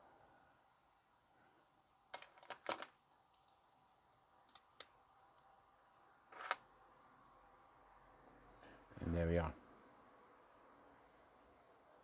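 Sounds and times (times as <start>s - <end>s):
metal watches clinking: 3.3s - 6.6s.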